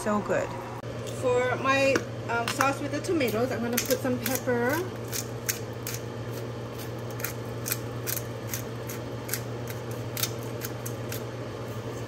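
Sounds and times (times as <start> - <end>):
pepper mill grinding peppercorns: 3.2 - 11.9.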